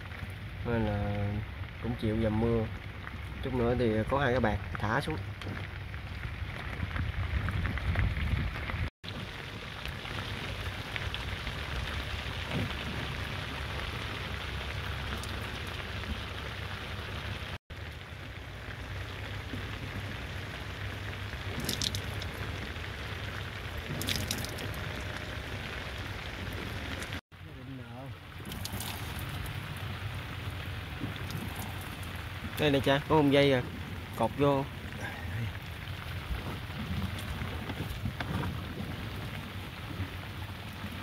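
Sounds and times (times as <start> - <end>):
drips and patters: 0.0 - 41.0
low rumble: 0.0 - 41.0
heavy rain hiss: 9.1 - 41.0.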